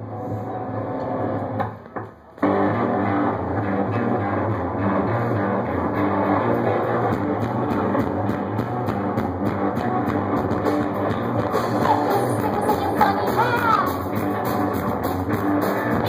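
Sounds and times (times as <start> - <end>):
electric guitar: 0.0 - 16.0
drum kit beat: 4.2 - 16.0.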